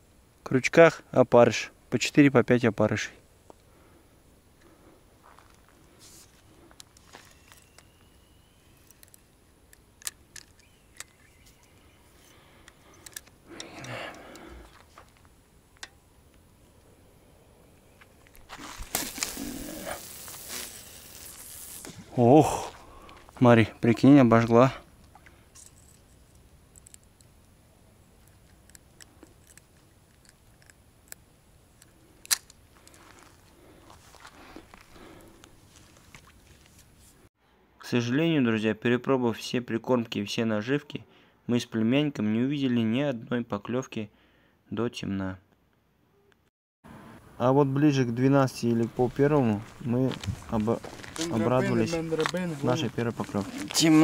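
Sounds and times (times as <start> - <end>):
rustle: 0.0 - 37.3, 48.6 - 54.0.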